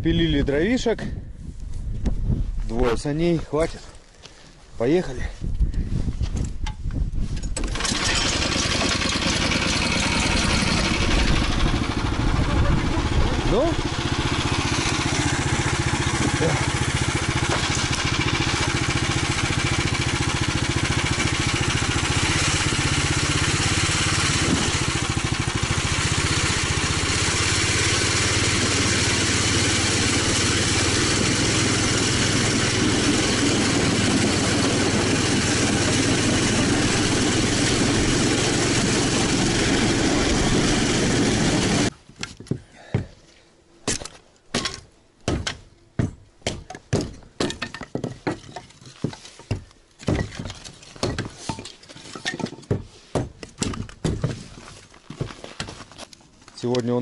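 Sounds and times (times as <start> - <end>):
snowmobile engine running: 7.8 - 41.9.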